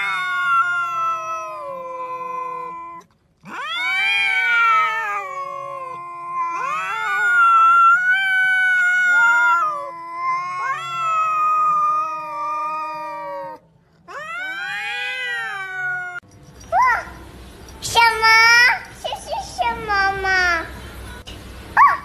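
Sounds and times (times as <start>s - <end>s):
cats yowling: 0.0s - 16.2s.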